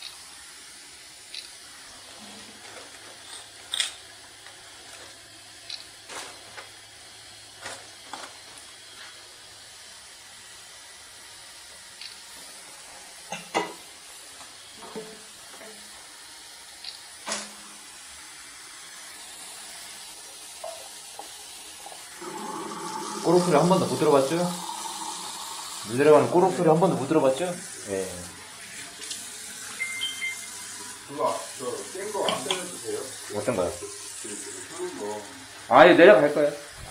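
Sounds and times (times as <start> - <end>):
faint steady hiss: 11.9 - 36.9
water running into washbasin: 18.5 - 36.9.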